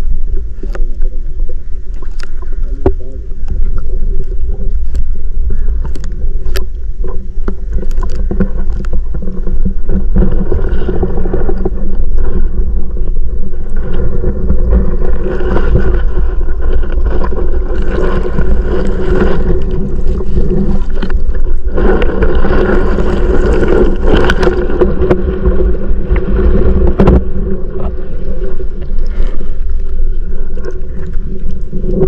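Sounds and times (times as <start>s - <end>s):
muffled underwater rumble and sloshing: 0.0s - 32.0s.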